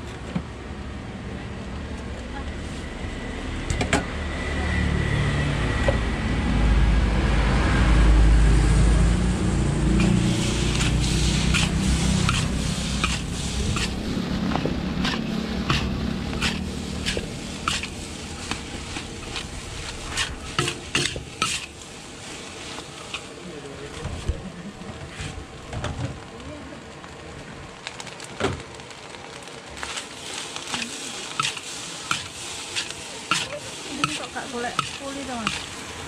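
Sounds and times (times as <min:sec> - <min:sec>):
rice sizzling in a wok: 0:00.0 - 0:06.4, 0:07.0 - 0:36.0
spatula clanking and scraping wok: 0:10.0 - 0:23.3, 0:29.8 - 0:35.9.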